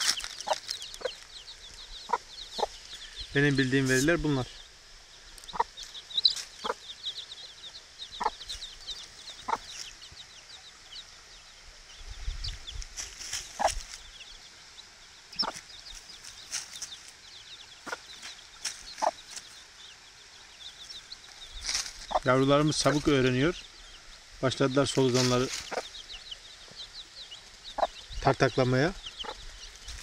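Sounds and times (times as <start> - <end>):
hen clucking softly: 0.0 - 2.8, 5.4 - 7.0, 7.6 - 10.6, 13.5 - 14.0, 15.3 - 15.7, 17.8 - 19.6, 25.2 - 28.1, 29.0 - 29.6
chicks peeping: 0.0 - 30.0.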